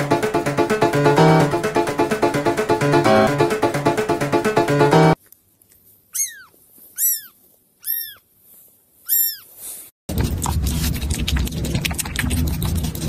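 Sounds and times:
kitten mewing: 6.1s - 8.2s, 9.1s - 9.5s.

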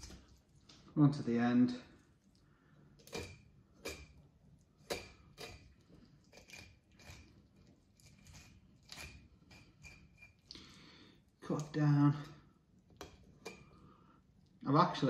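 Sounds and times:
knife scraping fish bones: 3.0s - 4.2s, 4.8s - 10.5s, 13.0s - 13.8s.

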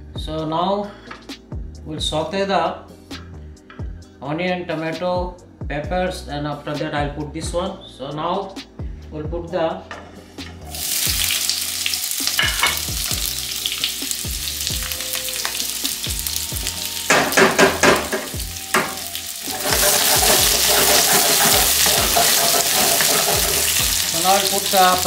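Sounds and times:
vegetables sizzling in oil: 10.7s - 25.0s.

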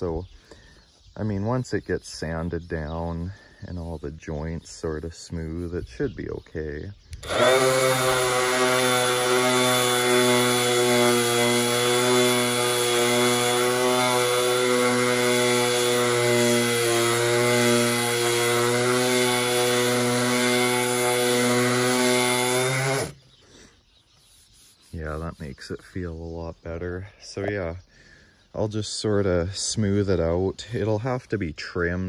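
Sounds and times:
orbital sander sanding wood: 4.6s - 26.3s.

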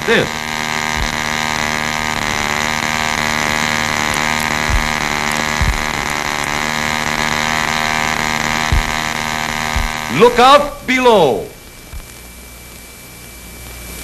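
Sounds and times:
model airplane engine buzzing: 0.0s - 10.4s.

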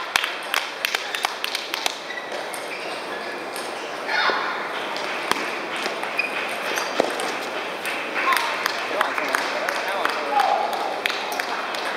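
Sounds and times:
murmur of large hall: 0.0s - 11.9s
people talking: 8.1s - 11.9s.

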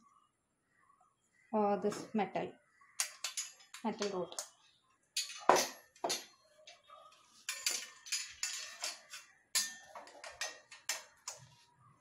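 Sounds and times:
metal rods clinking on metal panel: 3.0s - 4.5s, 5.2s - 6.3s, 7.5s - 11.5s.

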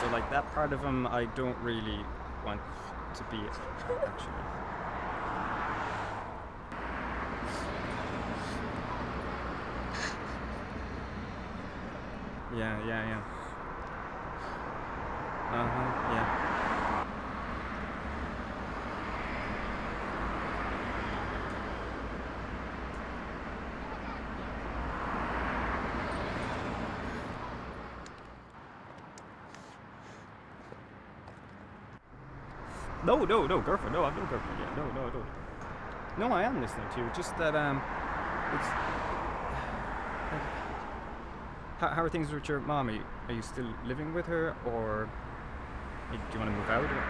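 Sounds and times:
vehicle passing: 0.0s - 28.8s, 30.9s - 47.0s
city traffic hum: 0.0s - 47.0s
faint short hisses: 9.9s - 10.4s.

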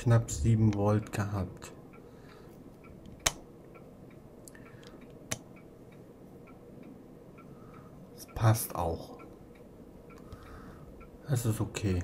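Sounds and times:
faint rapid ticking: 0.0s - 12.0s
sharp clicks: 2.8s - 6.6s.

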